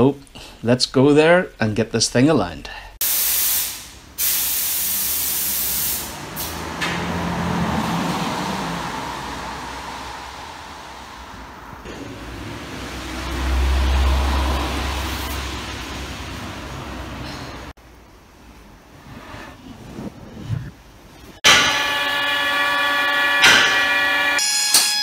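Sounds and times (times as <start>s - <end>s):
continuous low hiss: 0.0s - 6.2s, 17.8s - 21.4s
compressed air hissing bursts: 3.0s - 6.6s
low rumble: 6.8s - 17.7s.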